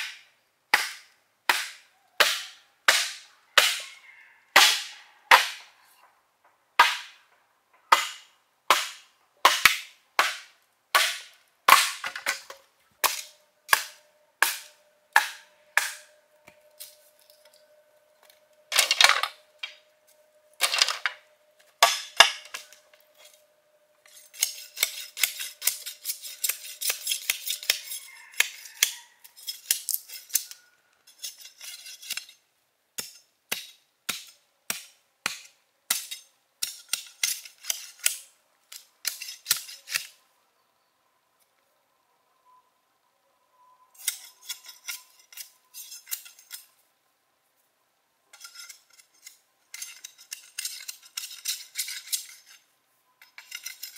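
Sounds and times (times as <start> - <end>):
bamboo being chopped: 0.0 - 3.8, 4.6 - 5.7, 6.8 - 7.2, 7.9 - 16.6, 21.8 - 22.7, 33.0 - 38.3.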